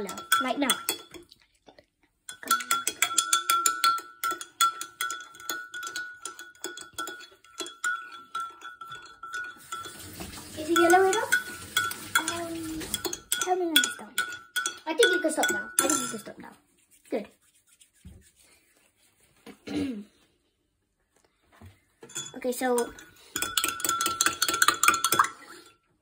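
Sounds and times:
whisk clinking against glass: 0.0s - 1.3s, 2.3s - 16.4s, 22.1s - 25.8s
glass jug ringing: 2.3s - 16.2s, 22.1s - 25.4s.

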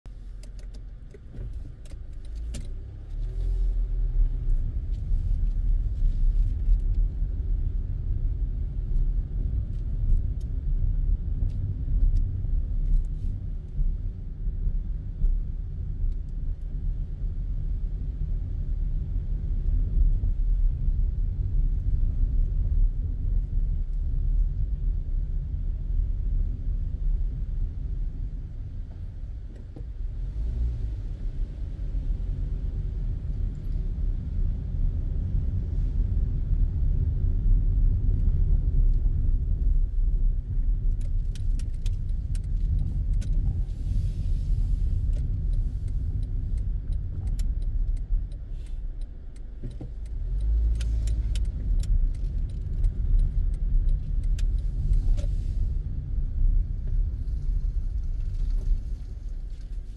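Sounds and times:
car engine and tyre noise: 0.0s - 59.9s
light clicks: 45.0s - 55.3s.

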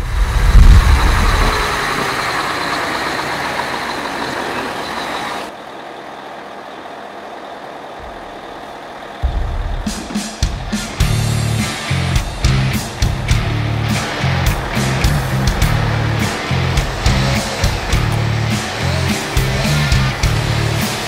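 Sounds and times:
low rumble: 0.0s - 2.6s, 8.0s - 20.6s
loud rush of noise: 0.0s - 21.0s
deep boom: 9.2s - 18.1s.

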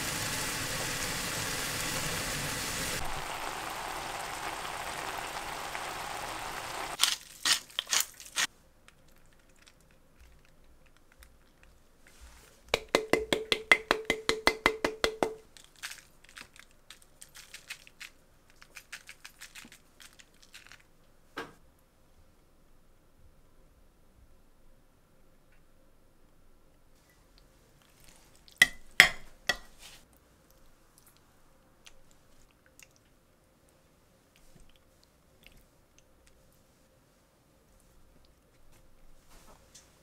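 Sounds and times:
sauce sizzling in a frying pan: 0.0s - 7.0s.

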